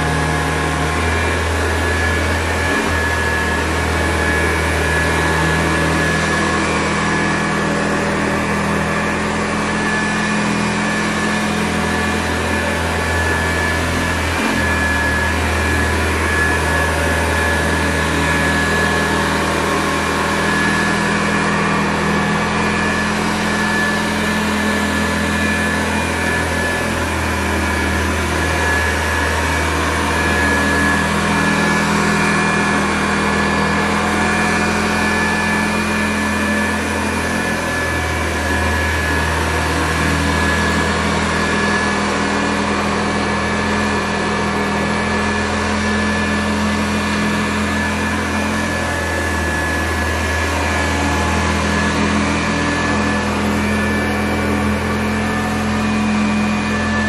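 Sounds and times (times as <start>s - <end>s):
vacuum cleaner motor whine: 0.0s - 57.0s.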